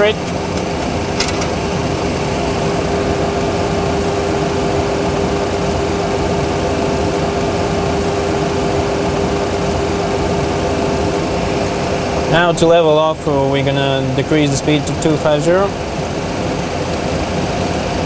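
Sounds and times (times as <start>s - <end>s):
cockpit rushing hum: 0.0s - 18.0s
constant tone: 0.0s - 18.0s.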